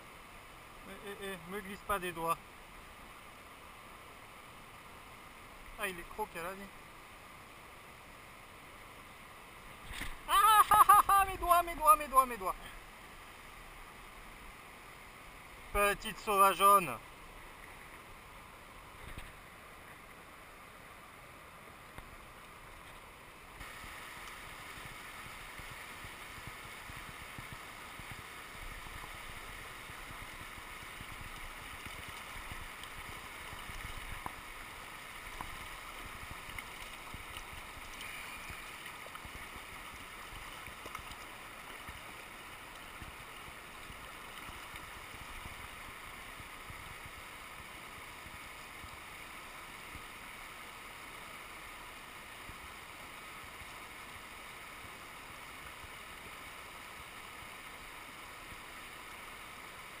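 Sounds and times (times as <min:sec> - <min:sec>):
river rushing over rocks: 0:00.0 - 1:00.0
faint ticks: 0:29.8 - 0:34.4, 0:35.3 - 0:45.6.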